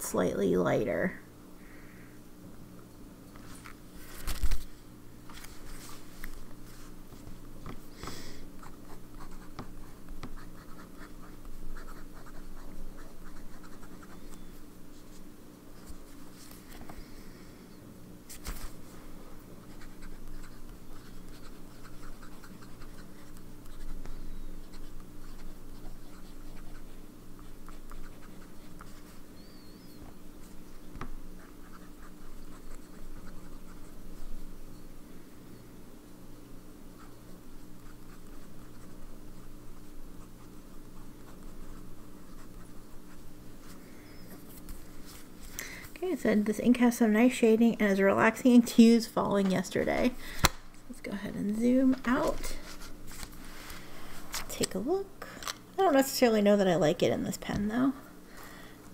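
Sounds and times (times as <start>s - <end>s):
low steady hum: 0.0s - 58.9s
fountain pen scratching on paper: 8.6s - 14.4s, 19.6s - 29.2s, 31.4s - 34.0s, 37.8s - 43.3s.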